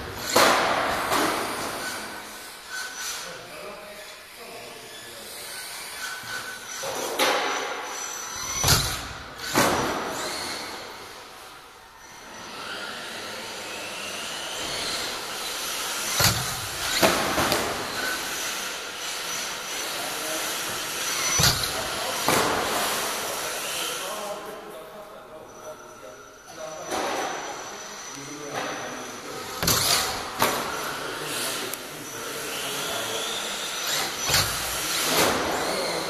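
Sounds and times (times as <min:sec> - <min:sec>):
electric motor whining: 0:12.0 - 0:24.0, 0:27.6 - 0:36.0.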